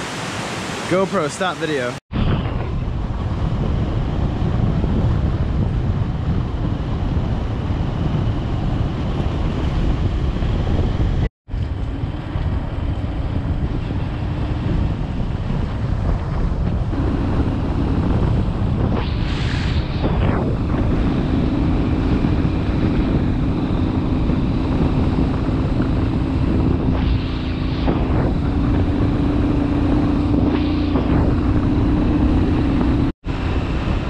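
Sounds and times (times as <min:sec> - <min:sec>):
wind buffeting microphone: 0:02.1 - 0:34.0
motorcycle engine humming: 0:02.3 - 0:34.0.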